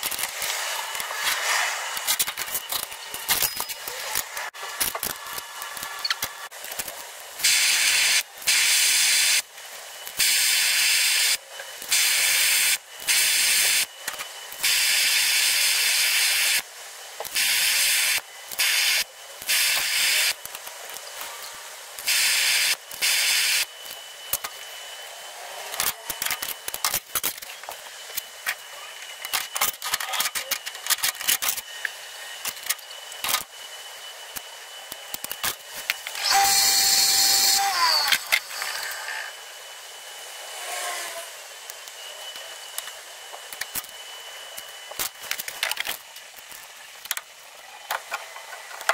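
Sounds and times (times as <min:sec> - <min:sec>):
gas torch hissing: 0:00.0 - 0:06.5.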